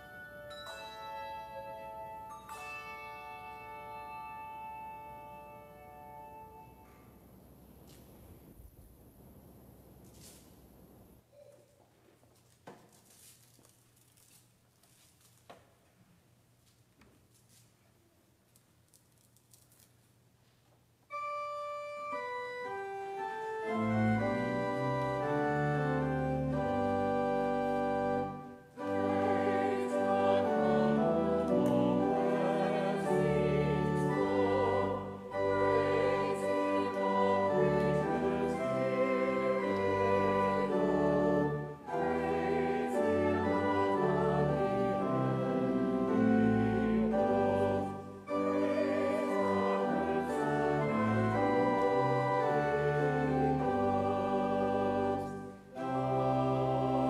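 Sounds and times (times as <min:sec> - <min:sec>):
church organ playing a hymn: 0:00.0 - 0:07.2, 0:21.1 - 0:57.0
congregation singing: 0:22.1 - 0:57.0.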